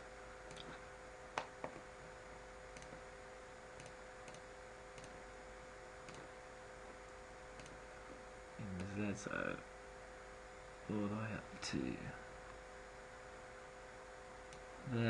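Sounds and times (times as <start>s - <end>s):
faint electrical hum: 0.0s - 15.0s
computer mouse clicks: 2.7s - 3.0s, 3.8s - 5.2s, 6.0s - 6.3s, 7.6s - 7.8s.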